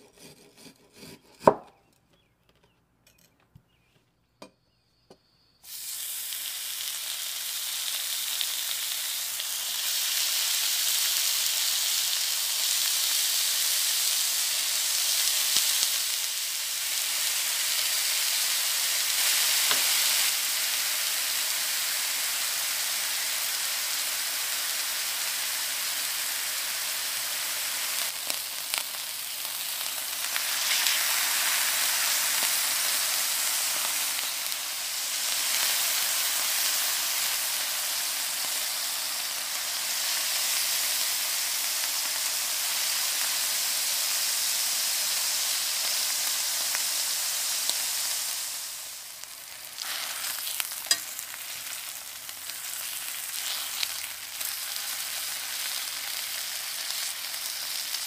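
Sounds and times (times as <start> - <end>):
meat sizzling in hot oil: 5.6 - 58.0
fork and spatula clicking on pan: 50.8 - 51.2.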